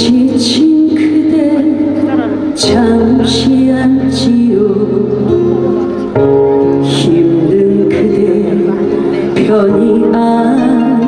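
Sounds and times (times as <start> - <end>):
instrumental accompaniment: 0.0 - 11.0
woman singing into microphone: 0.0 - 11.0.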